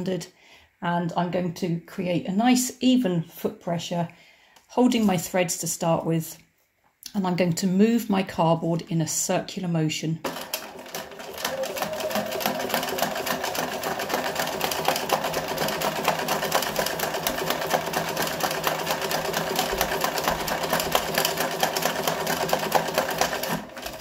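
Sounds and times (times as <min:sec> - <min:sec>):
sewing machine stitching rapidly: 0:10.2 - 0:24.0.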